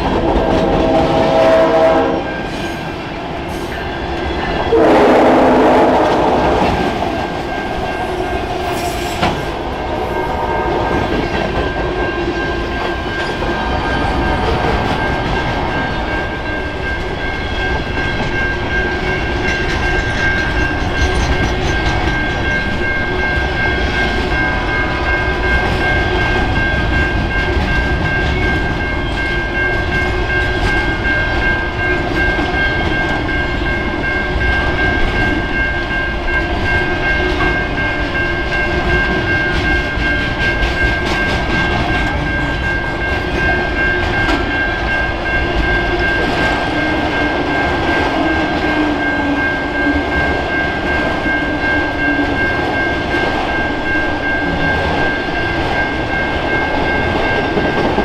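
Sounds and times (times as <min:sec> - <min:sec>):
freight train rumbling past: 0:00.0 - 0:58.0
high-pitched ring: 0:07.1 - 0:58.0.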